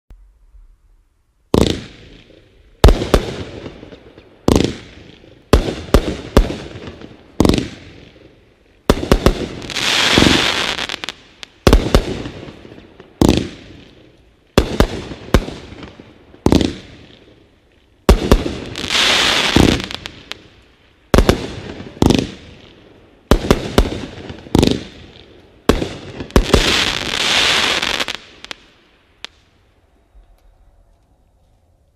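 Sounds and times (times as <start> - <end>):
dense fireworks crackling: 0.1 - 31.9
fireworks bangs: 1.5 - 29.6.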